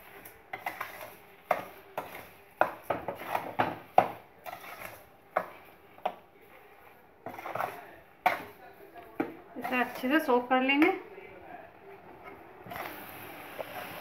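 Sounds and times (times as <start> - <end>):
metal spoon scraping a pot: 0.0 - 3.7, 4.4 - 5.6, 7.2 - 8.5.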